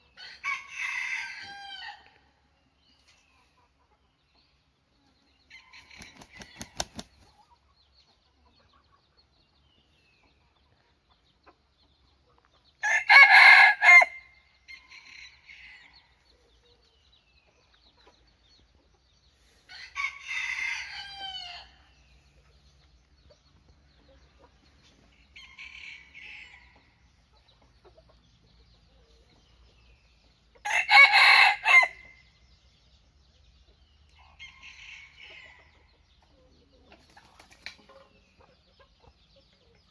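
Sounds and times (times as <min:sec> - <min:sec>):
rooster crowing: 0:12.8 - 0:14.2, 0:30.6 - 0:32.0.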